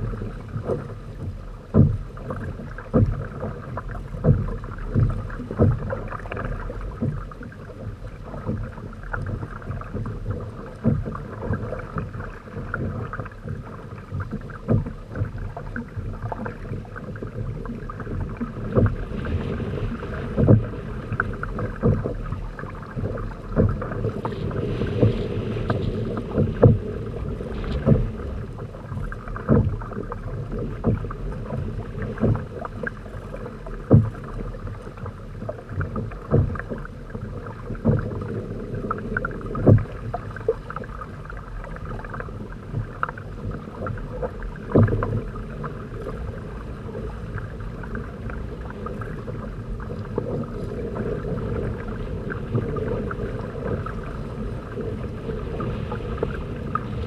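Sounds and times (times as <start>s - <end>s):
water slapping against hulls: 0.0s - 57.0s
hull thumps: 1.7s - 2.0s.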